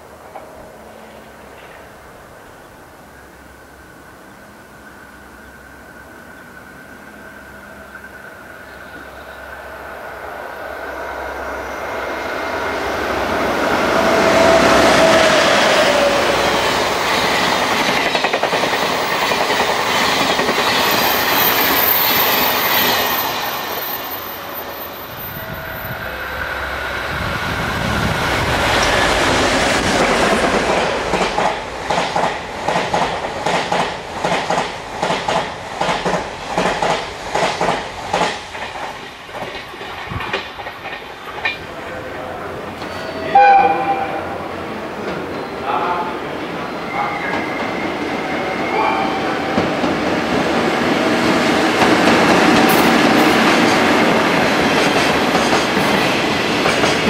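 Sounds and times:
train wheels rumbling on rail: 3.4s - 57.0s
clickety-clack over rail joints: 16.6s - 21.7s, 28.7s - 42.0s, 49.5s - 57.0s.

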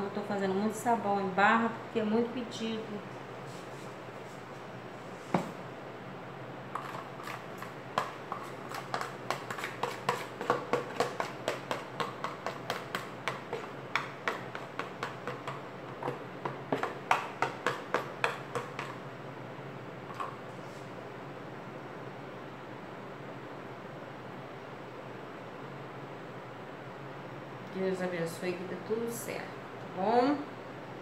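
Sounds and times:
spoon knocking on plastic pitcher: 8.9s - 19.0s.

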